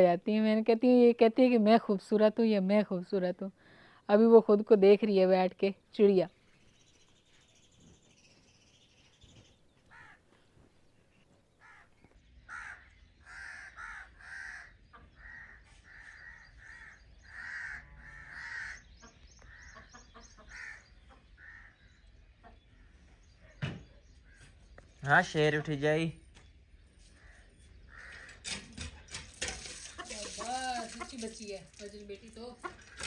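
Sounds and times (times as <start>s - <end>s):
crow cawing: 9.9s - 10.2s, 11.6s - 18.9s, 20.5s - 21.8s, 27.2s - 28.5s.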